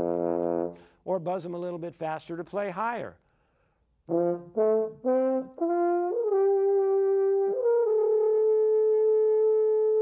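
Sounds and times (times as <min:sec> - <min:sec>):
french horn notes: 0:00.0 - 0:01.1, 0:04.0 - 0:10.0.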